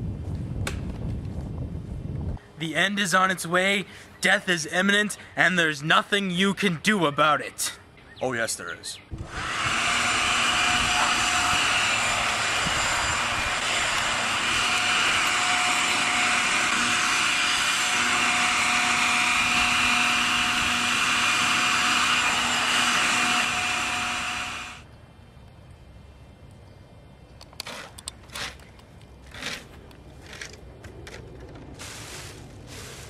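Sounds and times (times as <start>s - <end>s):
loud engine-like roar: 9.2s - 24.8s.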